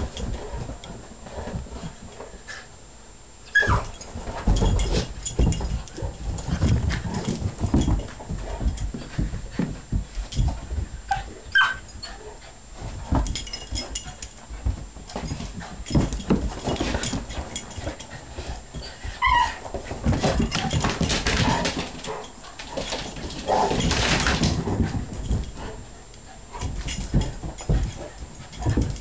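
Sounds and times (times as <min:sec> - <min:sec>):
dogs scuffling and thumping: 0:00.0 - 0:02.8, 0:03.4 - 0:29.0
dog whimpers and yips: 0:03.5 - 0:04.0, 0:11.1 - 0:12.2, 0:18.8 - 0:19.6.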